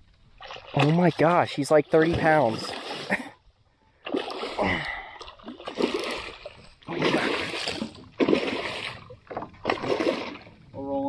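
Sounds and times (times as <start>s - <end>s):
fish splashing at water surface: 4.0s - 10.5s.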